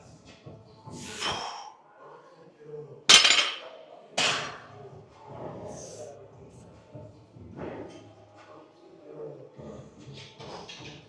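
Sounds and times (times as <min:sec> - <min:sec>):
weight plates clanking: 0:03.1 - 0:03.6.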